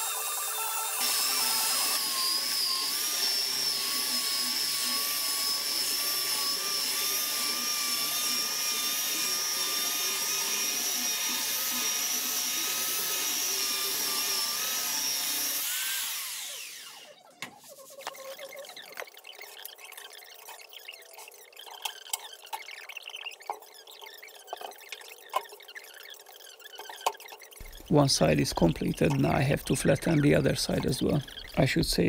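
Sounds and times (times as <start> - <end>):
belt sander whining: 0.0 - 32.0.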